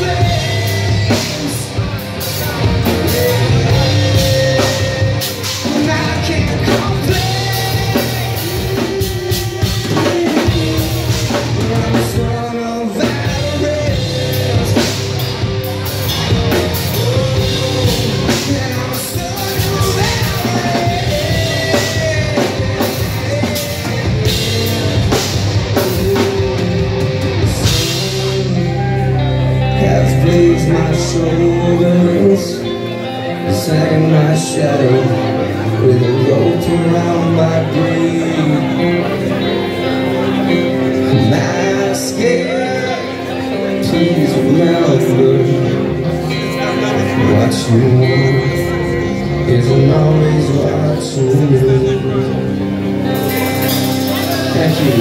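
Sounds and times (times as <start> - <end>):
drum kit with cymbals: 0.0 - 29.2, 53.1 - 55.0
bass guitar: 0.0 - 55.0
distorted electric guitars: 0.0 - 55.0
person singing: 0.0 - 55.0.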